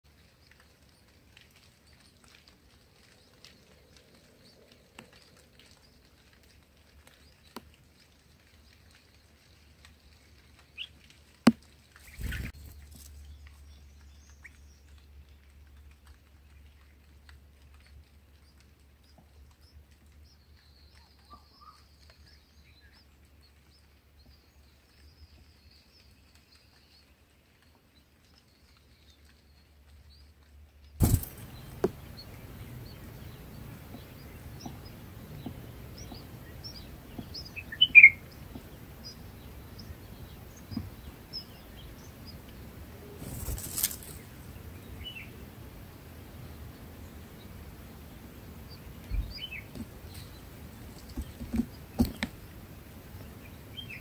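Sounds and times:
rustling burst: 31.0s - 32.0s
faint high bird chirps: 31.0s - 40.0s.

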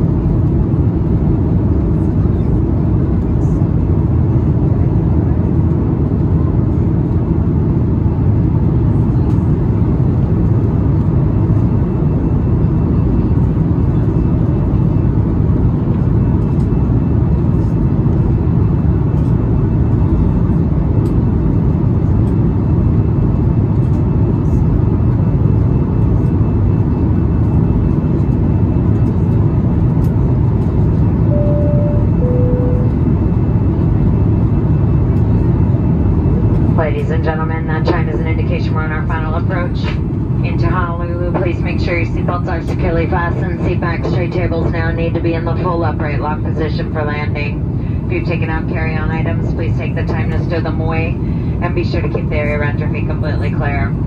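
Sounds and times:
engine and airflow rumble: 0.0s - 54.0s
two-tone cabin chime: 31.3s - 33.1s.

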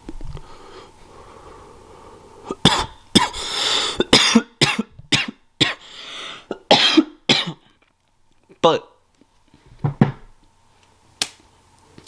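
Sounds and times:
man coughing: 2.5s - 3.4s, 4.0s - 5.8s, 6.5s - 7.6s.

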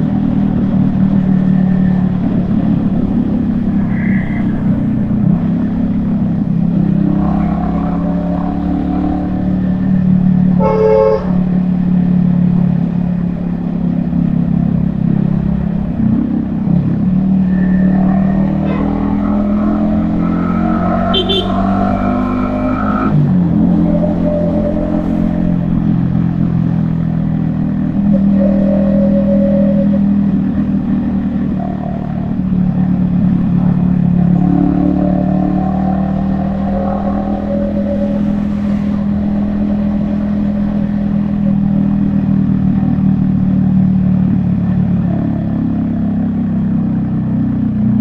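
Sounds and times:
motorcycle engine running: 0.0s - 34.8s
vehicle horn toot: 10.5s - 11.5s, 21.0s - 22.0s.

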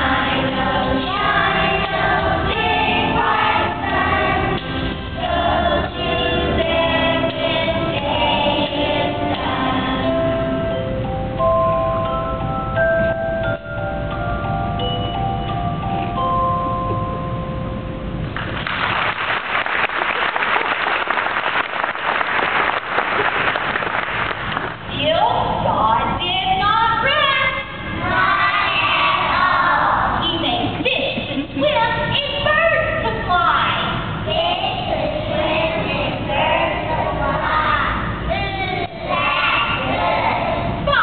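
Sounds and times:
children singing together: 0.0s - 10.4s, 28.0s - 30.2s, 33.5s - 41.0s
audience applauding: 18.4s - 24.8s.

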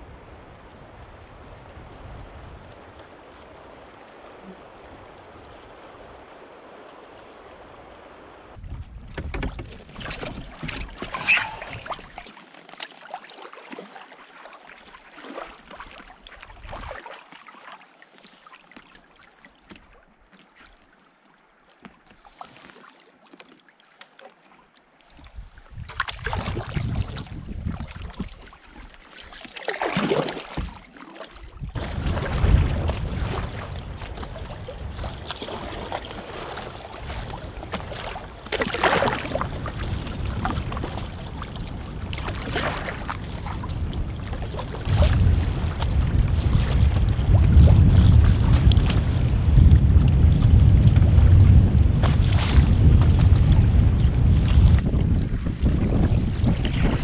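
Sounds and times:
wind buffeting microphone: 0.0s - 9.7s, 25.3s - 28.3s, 31.5s - 57.0s
choppy water sloshing: 0.0s - 57.0s
water lapping against canoe: 0.0s - 57.0s
canoe paddle strokes: 1.3s - 57.0s.

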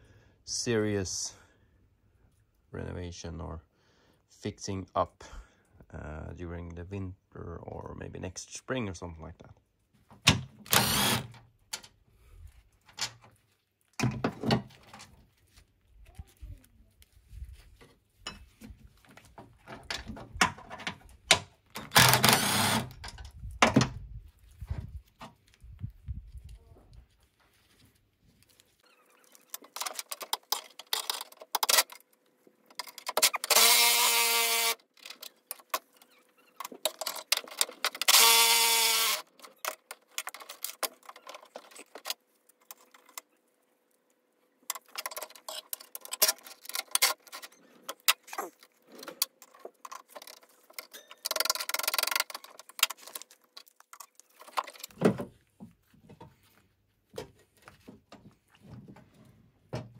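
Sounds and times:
metal tools clinking: 44.7s - 53.2s.

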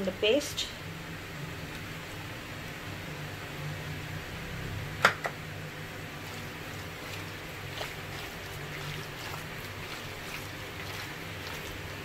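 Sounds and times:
low hum and hiss: 0.0s - 12.0s
soft wet squelches: 6.1s - 12.0s.

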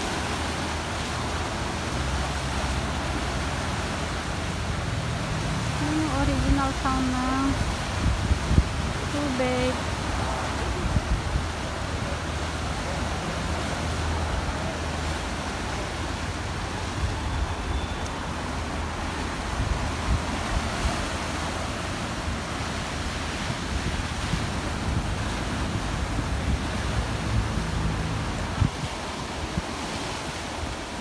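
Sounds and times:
waves breaking over rocks: 0.0s - 31.0s
wind buffeting microphone: 7.6s - 12.4s, 18.2s - 31.0s.

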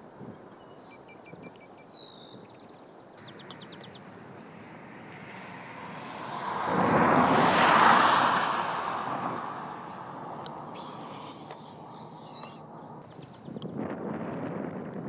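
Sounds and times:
small birds chirping: 0.2s - 5.3s, 9.6s - 13.8s
rushing noise: 3.2s - 13.0s
bird trill: 10.3s - 13.6s.

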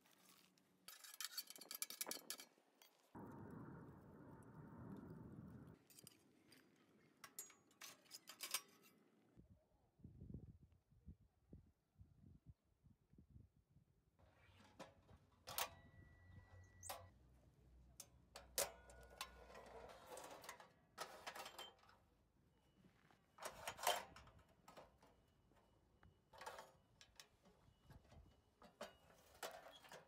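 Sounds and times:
metal stove parts clicking: 18.0s - 22.0s, 23.4s - 25.1s.

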